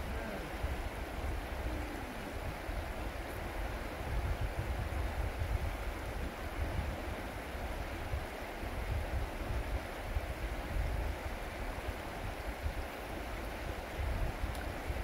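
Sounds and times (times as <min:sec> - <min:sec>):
fast river current rushing: 0:00.0 - 0:15.0
wind rumbling on microphone: 0:00.0 - 0:15.0.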